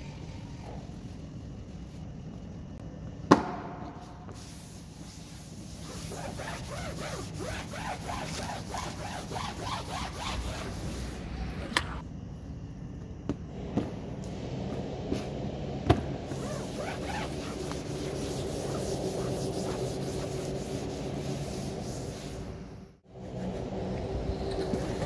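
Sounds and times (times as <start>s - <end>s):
sharp knock: 3.3s - 4.0s
rag rubbing wet rubber mat: 5.8s - 11.0s, 16.3s - 21.8s.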